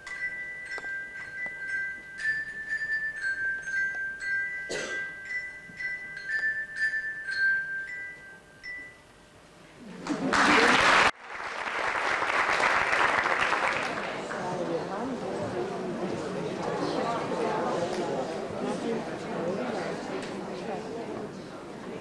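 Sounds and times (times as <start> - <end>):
glockenspiel tune: 0.0 - 9.3
audience applauding: 10.0 - 14.9.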